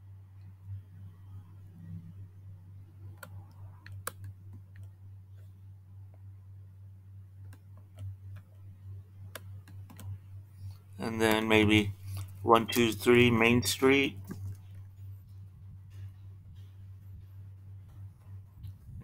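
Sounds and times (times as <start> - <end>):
faint low hum: 0.0 - 19.0
computer mouse clicks: 3.1 - 5.0, 7.4 - 8.5, 9.3 - 10.2.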